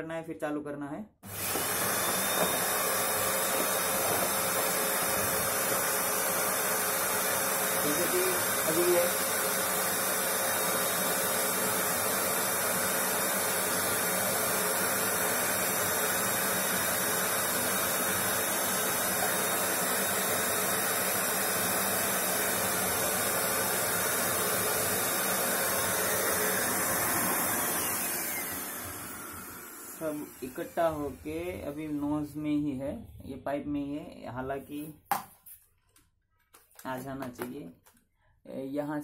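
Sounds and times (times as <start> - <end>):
vacuum cleaner running: 1.2 - 32.4
motor winding down with falling whine: 1.3 - 31.9.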